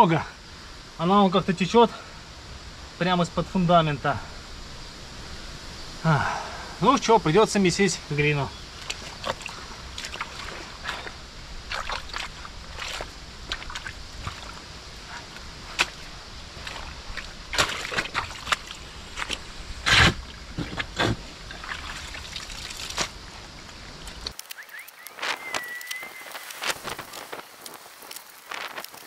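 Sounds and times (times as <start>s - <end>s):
muddy water sloshing: 8.2s - 24.4s
shovel digging in wet clay: 16.6s - 23.2s.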